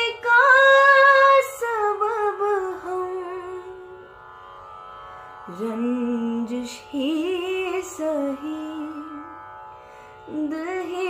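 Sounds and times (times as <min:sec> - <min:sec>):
woman singing: 0:00.0 - 0:04.0, 0:05.5 - 0:09.4, 0:10.3 - 0:11.0.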